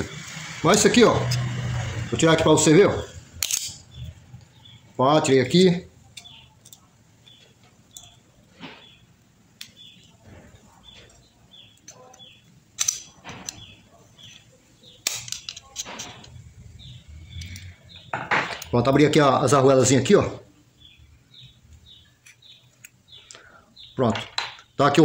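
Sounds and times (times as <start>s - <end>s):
small metal parts clicking and scraping: 3.4s - 4.1s, 6.1s - 9.0s, 9.6s - 18.8s, 22.0s - 23.4s.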